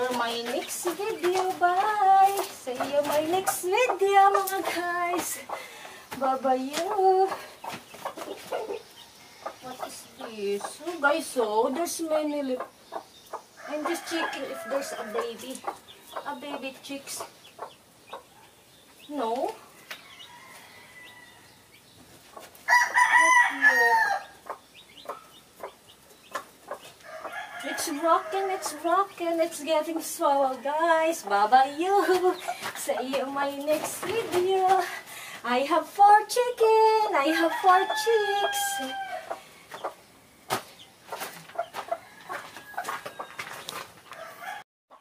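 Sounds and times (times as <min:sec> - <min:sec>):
hen clucking: 0:00.0 - 0:45.0
rooster crowing: 0:13.6 - 0:15.2, 0:20.0 - 0:21.6, 0:22.7 - 0:24.3, 0:27.1 - 0:28.8, 0:37.4 - 0:39.4, 0:44.1 - 0:44.6.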